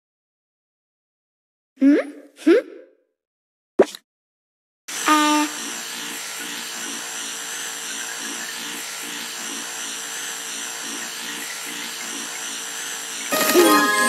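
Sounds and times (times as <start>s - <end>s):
small electric motor humming: 4.9s - 14.0s.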